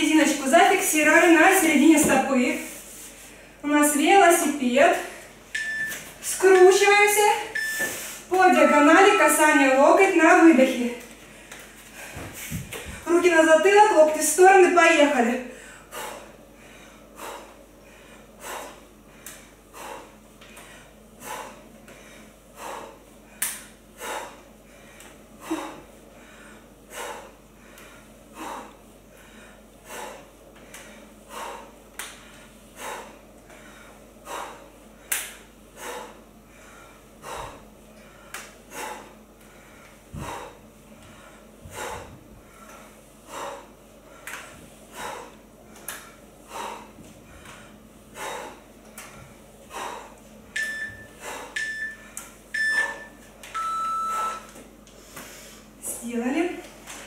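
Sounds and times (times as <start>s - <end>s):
woman breathing out forcefully: 35.8s - 44.3s.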